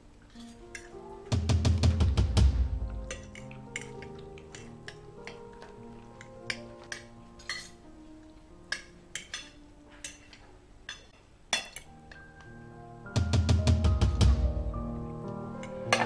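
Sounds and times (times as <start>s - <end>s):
soft background music: 0.0s - 16.0s
cutlery clinking on dishes: 0.3s - 1.0s, 3.0s - 12.5s, 15.6s - 16.0s
heavy drum hits and deep boom: 1.4s - 3.1s, 13.2s - 14.8s.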